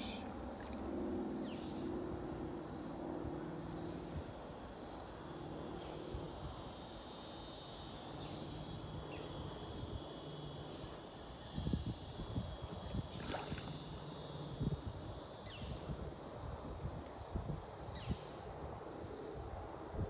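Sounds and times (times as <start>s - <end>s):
insects buzzing: 0.0s - 20.0s
fish splashing at water surface: 13.1s - 13.8s.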